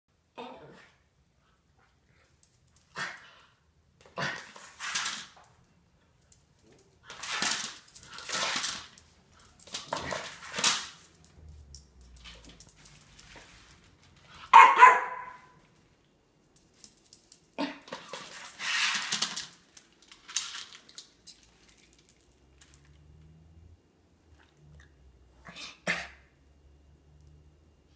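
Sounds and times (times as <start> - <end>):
dog barking sharply: 14.5 - 15.6.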